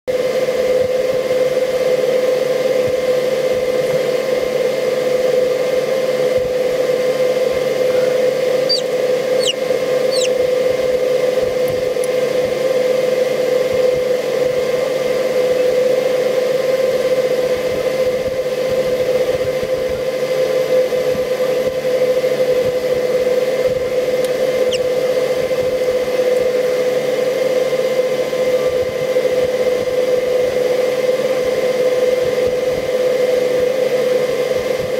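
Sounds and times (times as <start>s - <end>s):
fan motor humming: 0.1s - 34.9s
faint high chirps: 7.9s - 10.4s.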